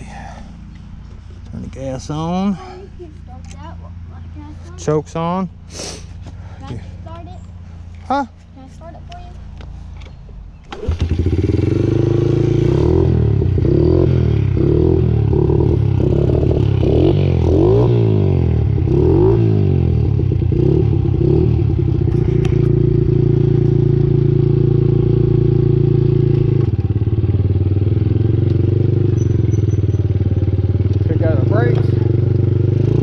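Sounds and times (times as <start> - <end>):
motorcycle engine revving: 10.7 - 33.0.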